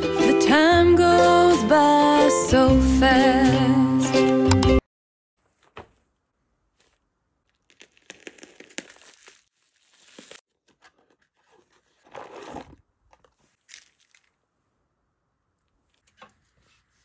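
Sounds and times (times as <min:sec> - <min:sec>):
plastic packaging tearing and crinkling: 0:06.8 - 0:12.8.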